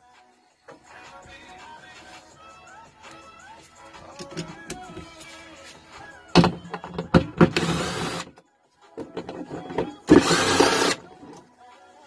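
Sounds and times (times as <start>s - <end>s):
cordless power driver running: 7.6s - 8.2s, 10.1s - 11.0s.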